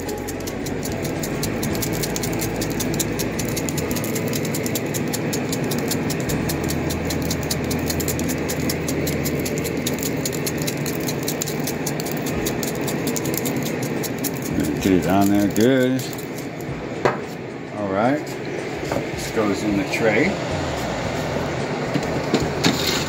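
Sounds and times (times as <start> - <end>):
small machine ticking rattle: 0.0 - 16.7.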